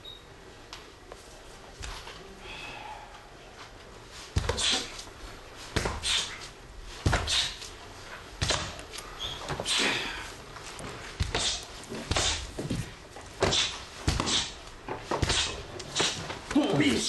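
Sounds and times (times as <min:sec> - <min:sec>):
sparring strikes landing: 0:04.4 - 0:04.9, 0:05.7 - 0:06.4, 0:07.0 - 0:07.6, 0:08.4 - 0:09.8, 0:11.2 - 0:16.6.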